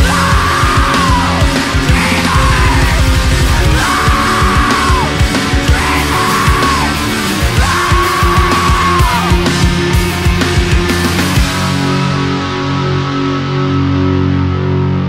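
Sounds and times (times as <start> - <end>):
yelled vocals: 0.0 - 11.4
fast pounding drums: 0.0 - 12.2
dense guitars: 0.0 - 15.0.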